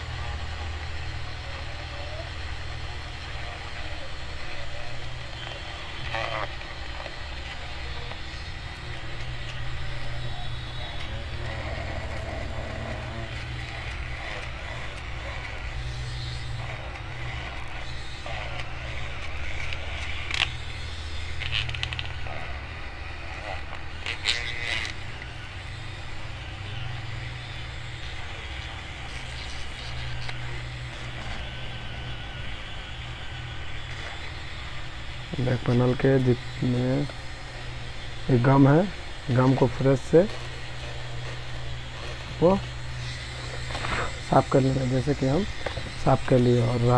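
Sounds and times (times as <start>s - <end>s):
steady low hum: 0.0s - 46.9s
metal tool scraping: 39.4s - 46.9s.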